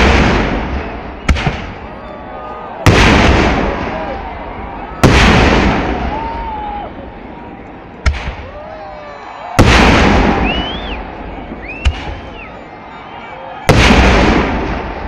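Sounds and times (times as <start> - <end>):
firework shells booming: 0.0 - 2.0, 2.8 - 6.5, 8.0 - 8.6, 9.5 - 12.4, 13.7 - 15.0.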